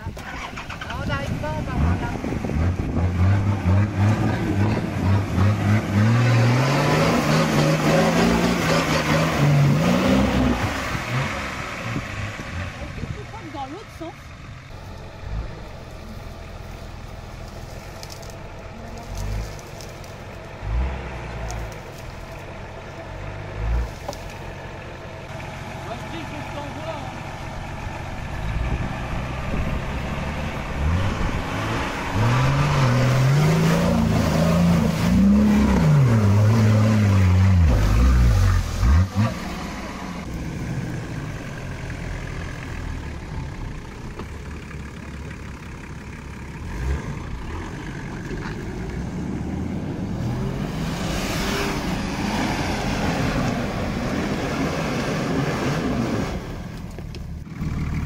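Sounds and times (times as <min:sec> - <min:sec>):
off-road vehicle engine revving: 0:00.0 - 0:58.0.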